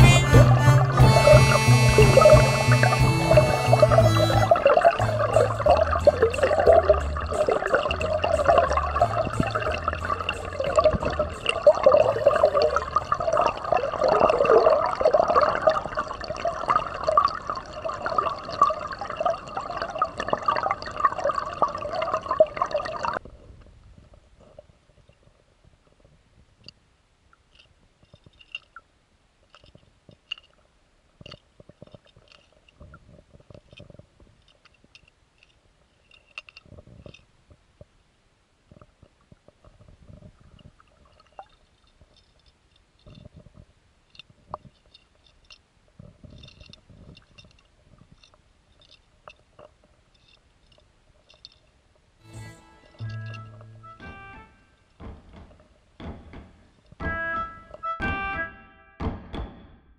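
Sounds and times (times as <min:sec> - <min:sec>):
underwater stream rushing over rocks: 0:03.9 - 0:23.2
faint underwater clicks: 0:04.5 - 0:38.0, 0:38.6 - 0:52.1.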